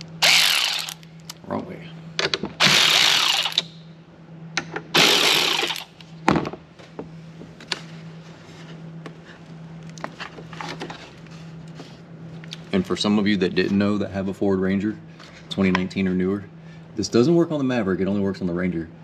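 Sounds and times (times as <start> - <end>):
electric ratchet running: 0.0 - 1.0, 2.6 - 3.7, 5.0 - 5.9.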